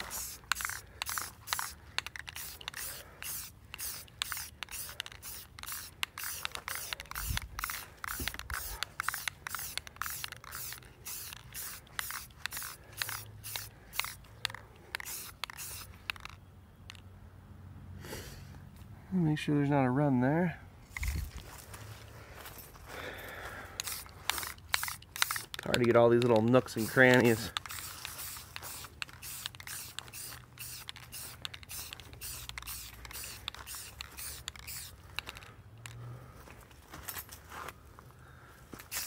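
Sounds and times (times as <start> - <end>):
aerosol can spraying bursts: 0.0 - 16.3, 23.8 - 35.4.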